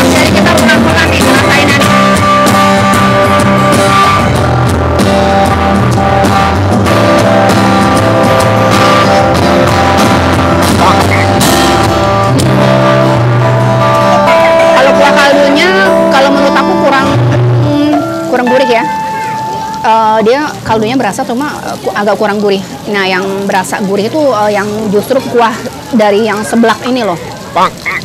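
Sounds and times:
rock music with guitar and drums: 0.0 - 19.9.

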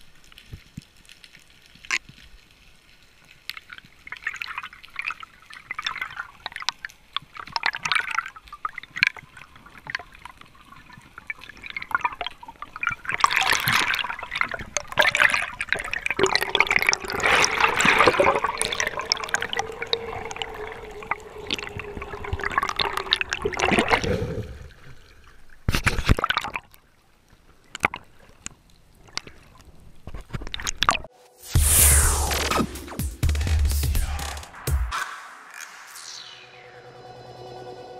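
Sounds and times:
water bubbling and sloshing: 3.2 - 31.2
loud burst of noise: 31.1 - 37.9.

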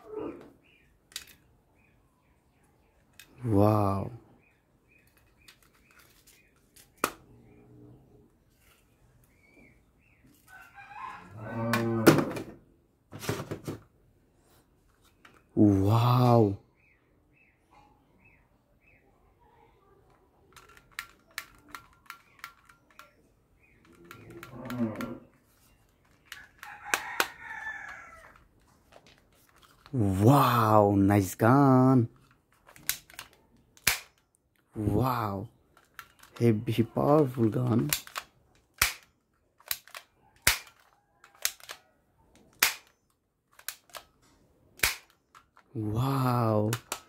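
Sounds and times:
plastic toy pistol clicks: 20.5 - 25.1, 32.2 - 34.3, 35.7 - 36.4, 37.8 - 44.2, 44.8 - 45.7, 46.7 - 47.0.

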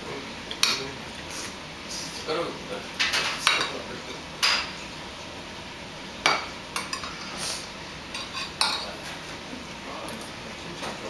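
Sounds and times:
utensils clinking on plates: 3.0 - 3.8, 6.3 - 7.4, 8.1 - 9.2.

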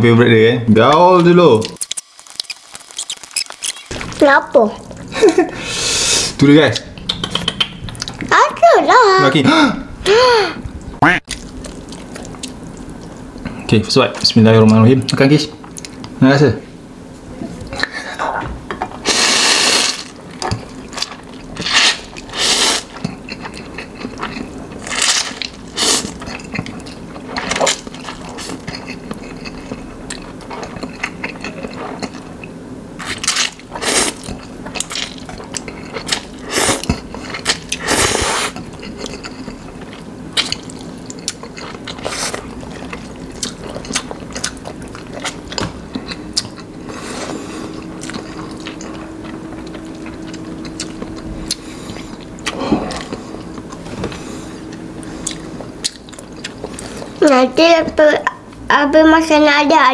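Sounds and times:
chewing: 1.6 - 4.2, 6.7 - 8.3, 11.3 - 14.8, 19.8 - 57.4.

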